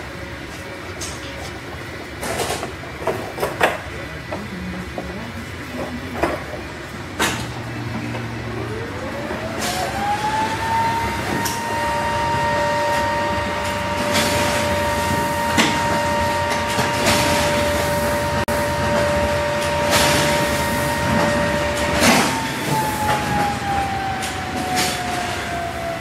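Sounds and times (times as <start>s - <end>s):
machine whine with two tones: 7.2s - 26.0s.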